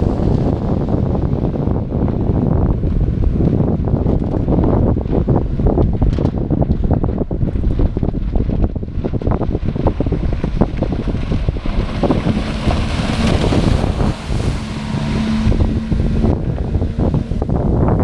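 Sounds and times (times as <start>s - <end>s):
outboard motor passing at speed: 0.0s - 18.0s
wind buffeting microphone: 0.0s - 18.0s
hiss of boat spray and wake: 11.7s - 17.8s.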